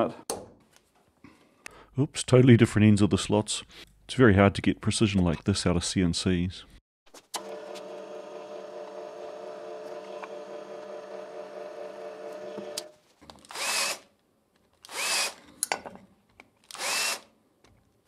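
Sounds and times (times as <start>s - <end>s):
drill press motor running: 7.4s - 12.9s
hand drill whining bursts: 8.9s - 14.1s, 14.8s - 15.4s, 16.7s - 17.3s.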